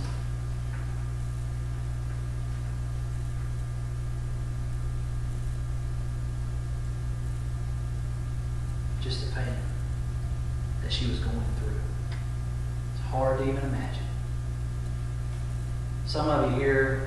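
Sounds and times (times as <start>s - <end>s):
low mains hum: 0.0s - 17.0s.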